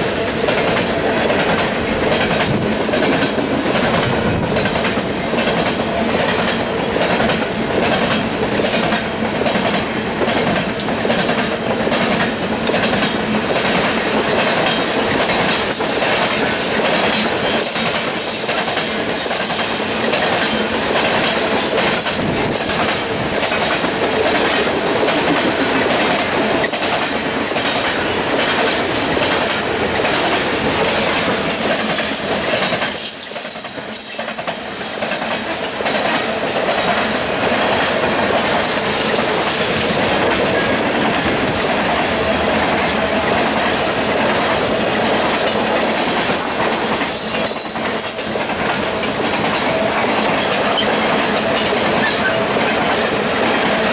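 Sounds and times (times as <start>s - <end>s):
rail cars rolling: 0.0s - 53.9s
wheels clicking on rail joints: 0.0s - 53.9s.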